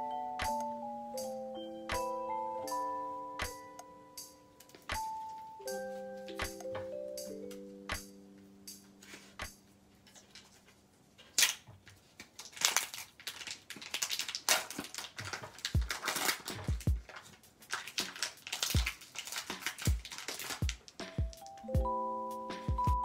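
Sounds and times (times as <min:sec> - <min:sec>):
plastic wrapper crinkling and tearing: 0:10.2 - 0:21.0.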